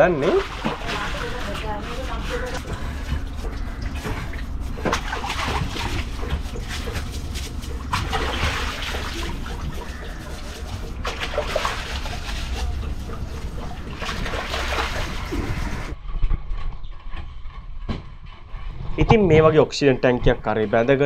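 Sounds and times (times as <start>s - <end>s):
water splashing: 0.0s - 16.0s.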